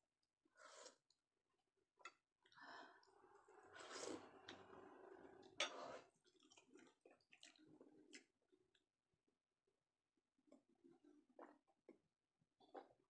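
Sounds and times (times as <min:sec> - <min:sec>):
soft chewing: 0:02.1 - 0:08.9
breathing: 0:02.5 - 0:04.2.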